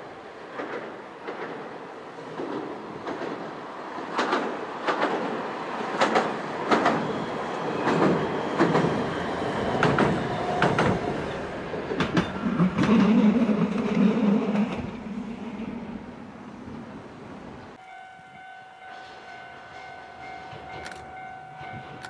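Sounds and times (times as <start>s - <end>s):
tram rolling rumble: 0.0s - 22.0s
tram wheels clicking over rail joints: 0.4s - 15.1s, 20.3s - 22.0s.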